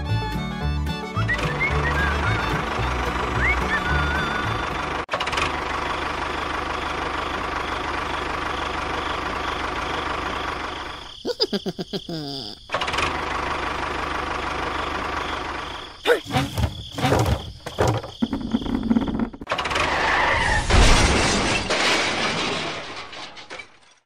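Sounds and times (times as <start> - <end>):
tractor engine running: 0.0 - 11.2, 12.7 - 19.8.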